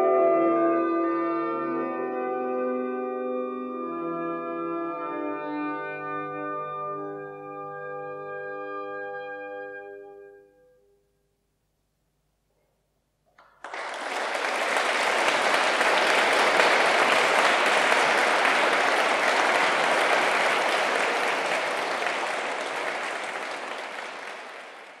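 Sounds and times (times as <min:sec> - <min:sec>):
audience applause: 0:13.4 - 0:25.0.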